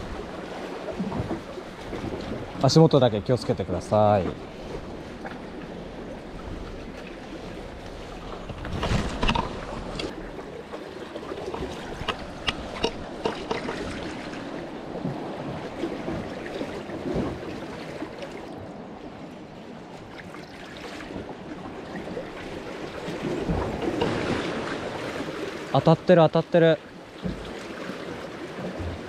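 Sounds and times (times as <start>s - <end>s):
seawater lapping on concrete: 6.4s - 18.6s, 20.0s - 25.8s
knocks and sharp clicks: 11.5s - 13.9s.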